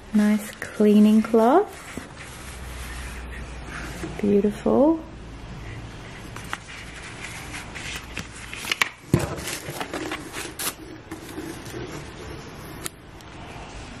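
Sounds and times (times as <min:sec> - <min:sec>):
paper packaging rustling: 0:06.3 - 0:12.8.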